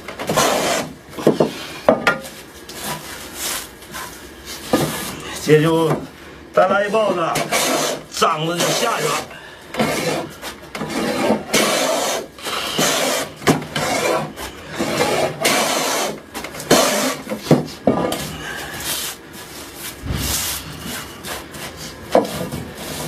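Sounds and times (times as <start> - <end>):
hand plane shaving wood: 0.3 - 0.9, 7.4 - 8.0, 9.8 - 17.3.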